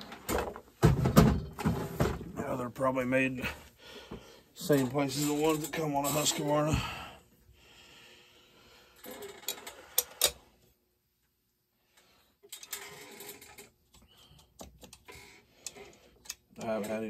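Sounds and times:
small parts rustling: 9.0s - 10.4s, 11.9s - 17.0s.

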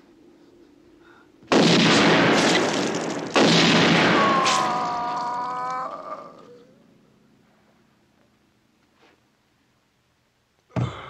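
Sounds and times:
film gunfire bursts: 1.5s - 5.2s.

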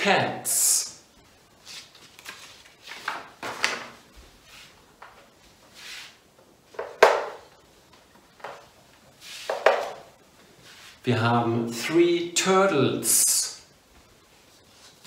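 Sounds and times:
paper card rustling: 1.6s - 3.9s.

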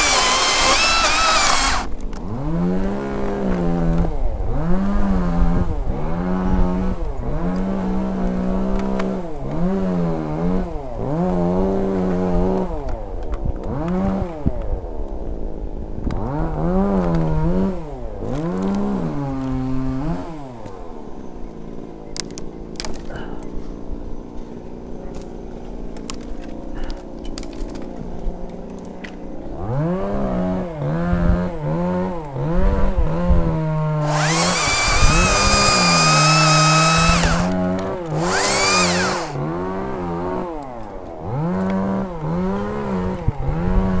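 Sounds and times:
chainsaw cutting branch: 0.0s - 4.9s, 16.2s - 20.9s, 29.6s - 44.0s
chainsaw revving: 0.0s - 12.8s, 16.2s - 20.9s, 29.6s - 44.0s.

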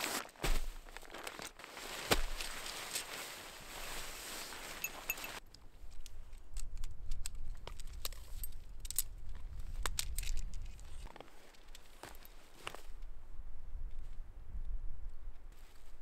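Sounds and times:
tent fabric rustling: 0.0s - 5.4s
tent poles clicking: 4.4s - 13.1s.

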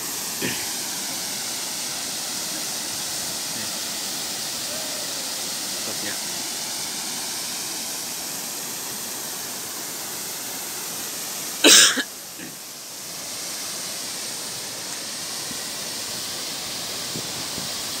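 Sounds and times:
person coughing: 0.4s - 0.7s, 11.6s - 12.6s.

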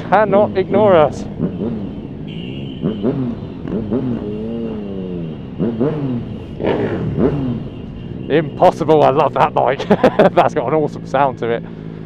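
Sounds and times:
motorcycle engines revving: 0.0s - 12.0s.

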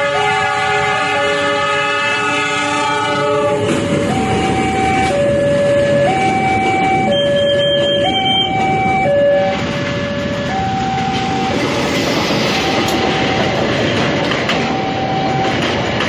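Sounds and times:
two-tone crossing alarm: 0.0s - 16.0s
train wheels clattering on rails: 3.2s - 16.0s.

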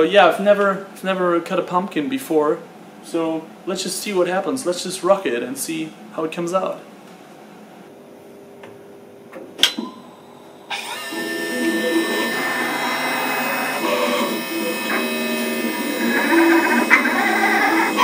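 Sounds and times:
cnc mill whining: 10.7s - 18.0s.

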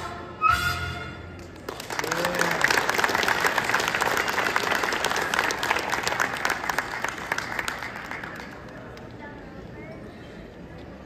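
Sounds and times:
audience applauding: 1.4s - 9.1s.

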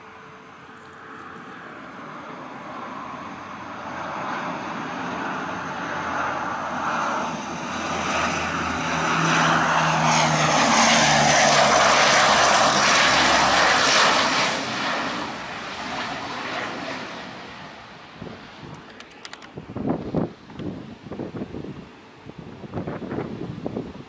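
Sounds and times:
turboprop aircraft roar: 0.0s - 24.0s.

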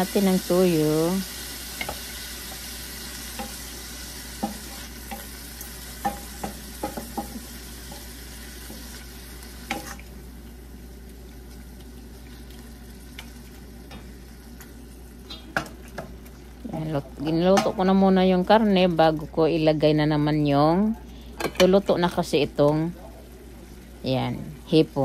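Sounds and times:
meat frying in a pan: 0.0s - 25.0s
wooden spoon knocking on pan: 6.0s - 8.0s.

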